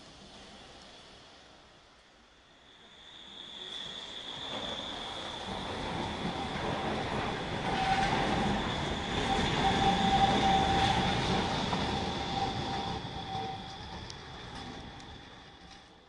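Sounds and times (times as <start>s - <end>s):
tram wheels rumbling on rails: 0.0s - 16.0s
high-pitched wheel squeal: 2.9s - 15.5s.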